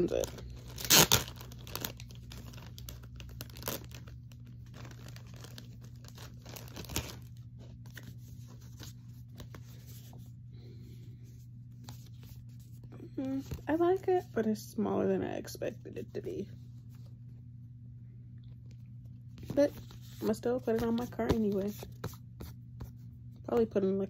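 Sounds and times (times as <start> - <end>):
plastic and paper crinkling: 0.0 - 10.2, 19.4 - 22.6
low steady hum: 0.0 - 24.0.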